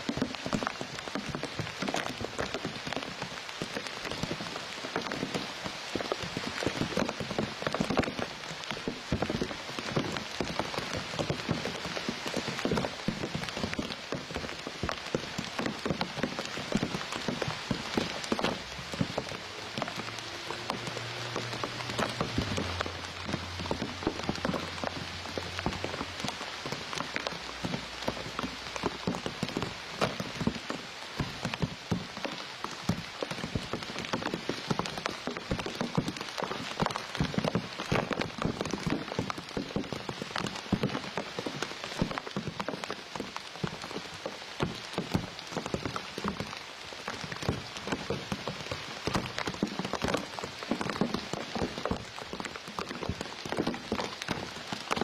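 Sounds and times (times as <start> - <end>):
rain falling on leaves: 0.0 - 55.0.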